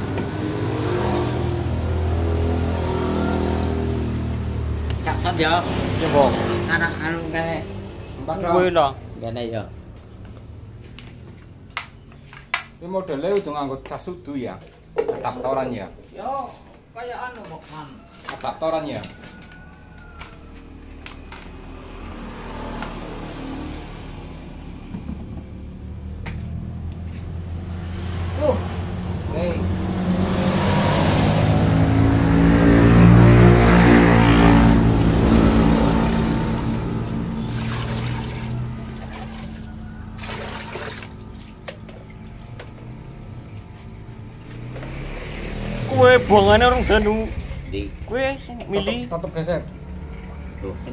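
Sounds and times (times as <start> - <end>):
vehicle engine humming: 0.0 - 12.8, 20.5 - 50.9
water running: 34.7 - 42.7.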